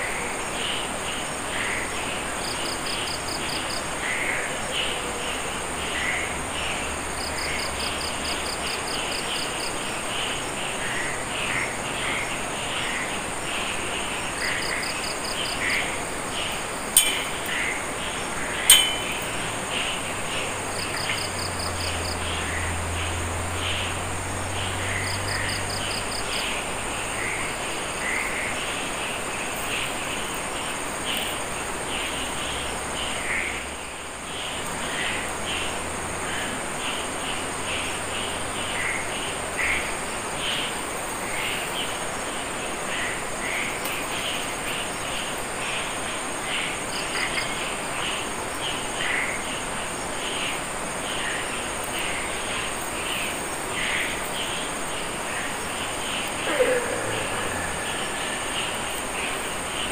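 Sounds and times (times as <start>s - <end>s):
high insect trill: 11.7s - 59.9s
frog calls: 55.0s - 59.9s.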